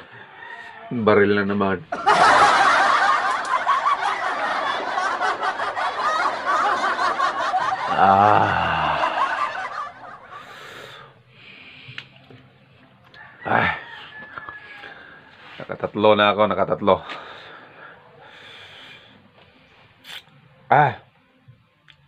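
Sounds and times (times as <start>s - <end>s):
loud laugh: 1.9s - 10.6s
people snickering and chuckling: 1.9s - 11.1s.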